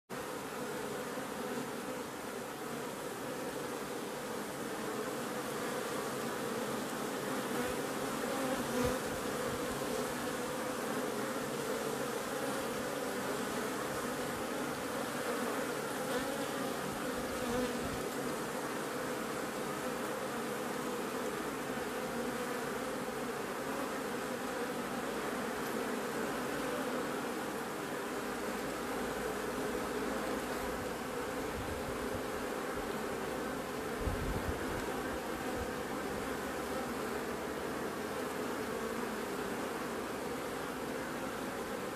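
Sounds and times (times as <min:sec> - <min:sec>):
bees buzzing: 0:00.1 - 0:41.9.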